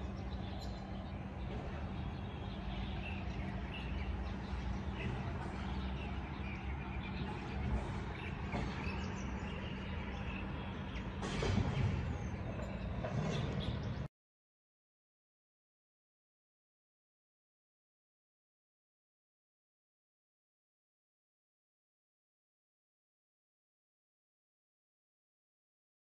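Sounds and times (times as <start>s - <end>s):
distant traffic rumble: 0.0s - 14.1s
small birds chirping: 0.0s - 14.1s.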